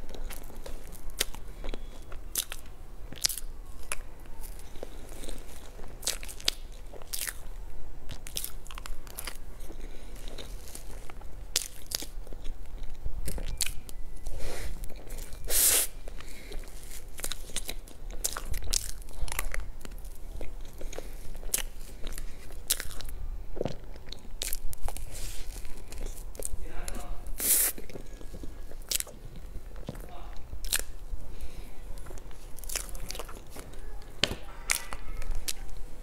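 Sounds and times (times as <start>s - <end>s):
mouth clicks while chewing: 0.1s - 7.5s, 8.1s - 30.0s, 30.6s - 31.0s, 32.0s - 33.7s
crinkly rustle: 24.6s - 27.0s.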